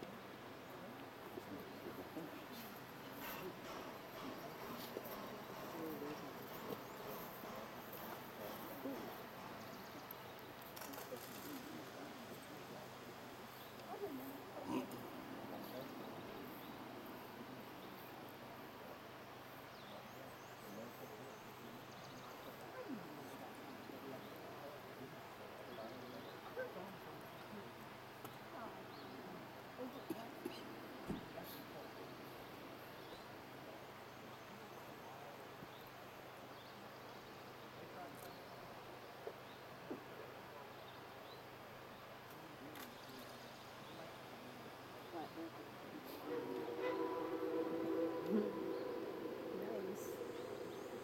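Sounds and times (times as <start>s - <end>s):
faint distant voices: 0.0s - 51.0s
low steady hum: 45.9s - 51.0s.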